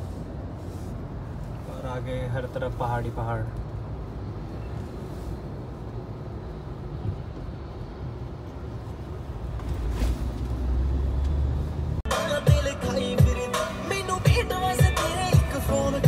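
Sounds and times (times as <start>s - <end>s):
road and engine rumble: 0.0s - 16.0s
music: 12.1s - 16.0s.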